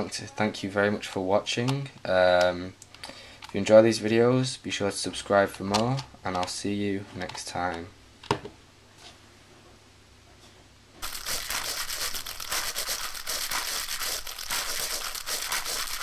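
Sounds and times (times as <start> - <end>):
dense crackling crinkling noise: 11.0 - 16.0.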